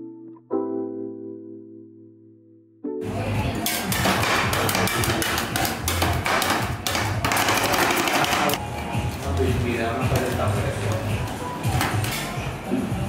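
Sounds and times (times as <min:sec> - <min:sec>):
metal spatulas clattering on steel plate: 0:03.6 - 0:08.6.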